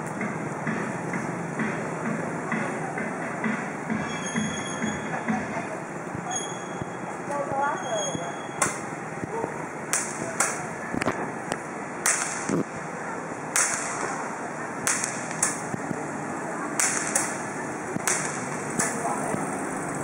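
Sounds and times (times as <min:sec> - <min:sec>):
fireworks cracking: 0:08.7 - 0:16.2, 0:16.8 - 0:19.9.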